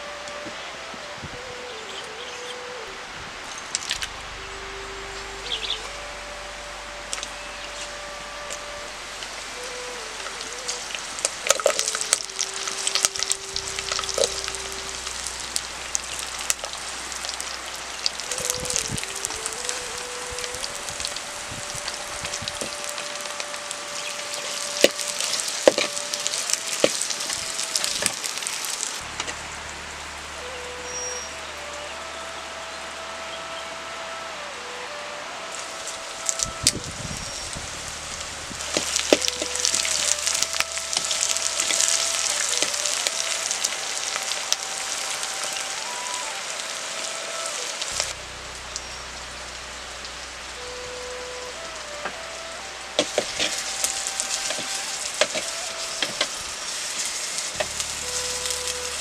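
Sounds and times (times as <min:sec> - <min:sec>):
onions sizzling: 0:08.5 - 0:31.3, 0:35.5 - 0:52.3, 0:53.0 - 0:59.0
chillies frying in hot oil: 0:09.4 - 0:31.3, 0:35.5 - 0:45.8, 0:46.5 - 0:59.0
crackles and pops: 0:10.2 - 0:29.4, 0:36.2 - 0:46.0, 0:52.9 - 0:59.0.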